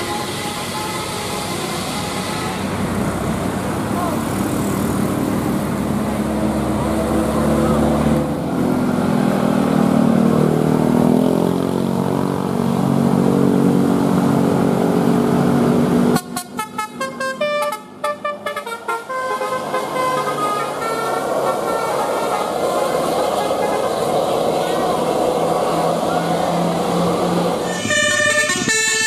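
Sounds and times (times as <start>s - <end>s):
multi-tone bus horn tune: 0.0s - 2.8s, 16.1s - 24.3s, 27.6s - 29.0s
heavy traffic: 0.0s - 29.0s
low bus engine: 0.0s - 29.0s.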